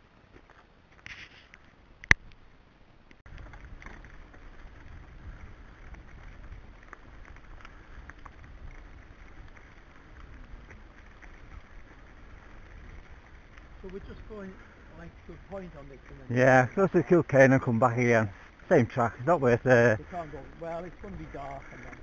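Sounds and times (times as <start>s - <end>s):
bike tyres rolling on gravel: 0.0s - 22.0s
wind on microphone: 3.3s - 15.4s.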